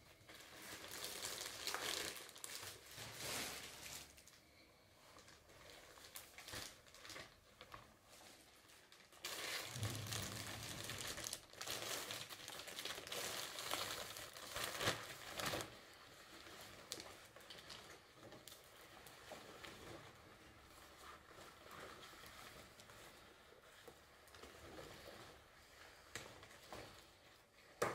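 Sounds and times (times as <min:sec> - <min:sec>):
plastic bag crinkling: 0:00.1 - 0:27.8.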